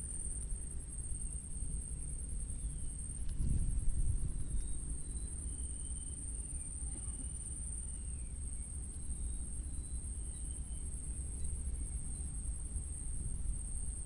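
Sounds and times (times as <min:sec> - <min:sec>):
insect trill: 0:00.0 - 0:14.0
wind rumble on microphone: 0:00.2 - 0:07.4, 0:10.7 - 0:14.0.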